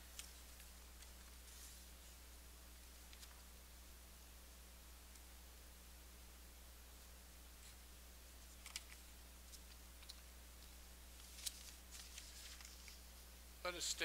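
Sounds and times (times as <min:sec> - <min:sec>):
faint clicks and rustles: 0:00.0 - 0:03.6, 0:07.6 - 0:13.3
steady low hum: 0:00.0 - 0:14.0.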